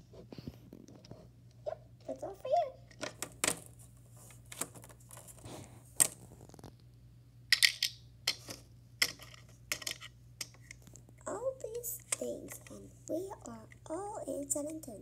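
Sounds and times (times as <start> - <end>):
plastic toys clicking and tapping: 7.5 - 12.8.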